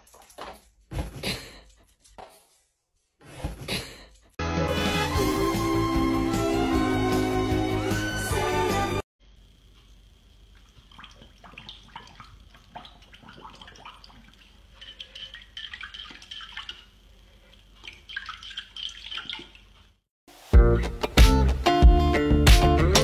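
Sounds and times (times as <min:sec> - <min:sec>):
water splashing in bowl: 0:10.5 - 0:20.0.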